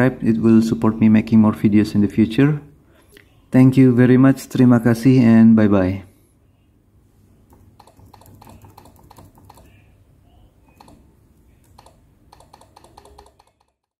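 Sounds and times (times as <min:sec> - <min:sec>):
laptop keyboard typing: 0:07.5 - 0:09.9, 0:10.6 - 0:14.0.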